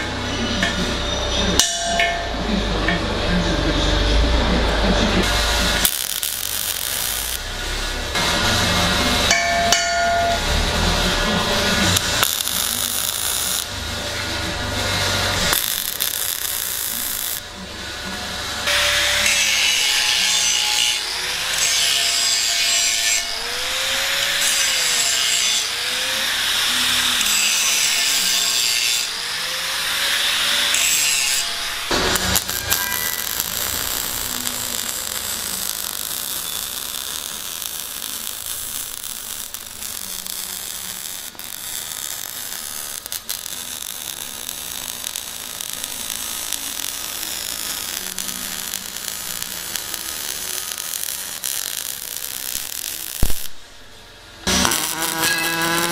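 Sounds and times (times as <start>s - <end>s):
abrasive scraping on steel pipe: 0.0s - 17.4s, 29.8s - 53.5s, 54.4s - 55.9s.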